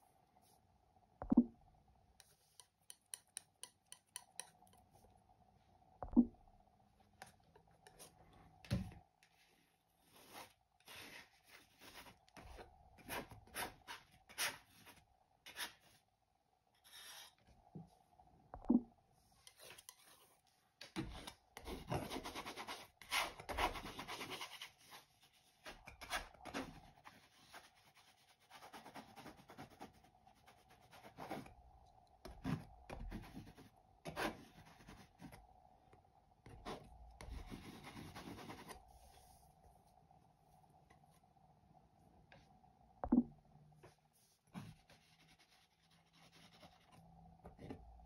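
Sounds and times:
faint steady hum: 0.0s - 48.0s
palette knife scraping paint: 10.0s - 16.0s, 19.4s - 31.5s, 32.2s - 35.4s, 36.4s - 38.8s.

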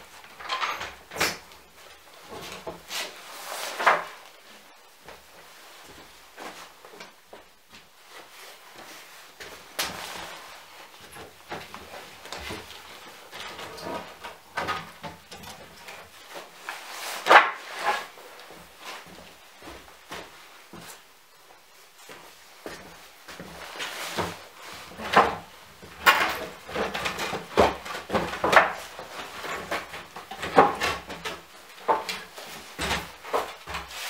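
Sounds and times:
wooden boards knocking and clattering: 3.7s - 4.2s, 11.4s - 16.5s, 17.2s - 18.1s, 24.1s - 34.0s.

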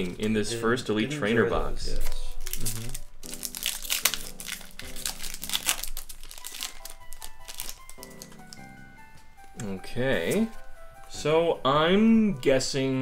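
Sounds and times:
soft background music: 0.0s - 13.0s
foil wrapper crinkling: 2.0s - 8.8s.

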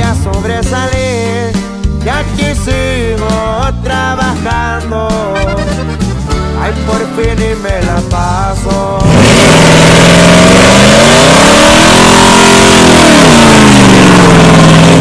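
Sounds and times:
truck engine revving: 7.8s - 15.0s.

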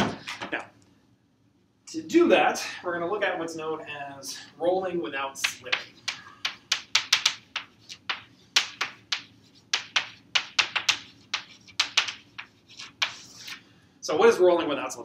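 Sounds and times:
chalk tapping and scratching on blackboard: 5.4s - 13.6s.

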